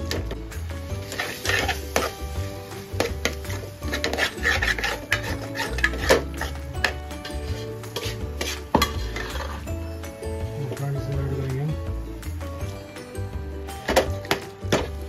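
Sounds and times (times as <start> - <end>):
metal utensil scraping a pan: 0.0 - 9.8
background music: 0.0 - 15.0.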